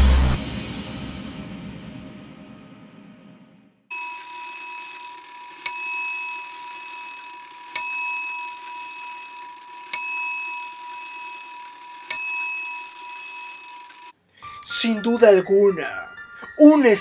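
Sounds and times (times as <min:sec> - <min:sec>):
small bell ringing: 0:03.9 - 0:14.1
steady high tone: 0:03.9 - 0:15.4.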